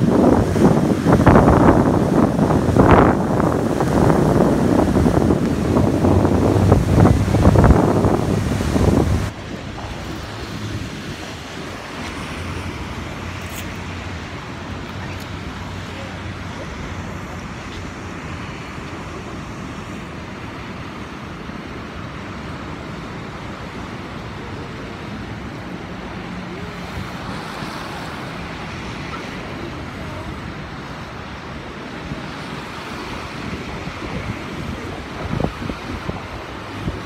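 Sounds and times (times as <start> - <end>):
wind buffeting microphone: 0.0 - 19.6, 29.5 - 37.0
surf breaking over rocks: 0.0 - 37.0.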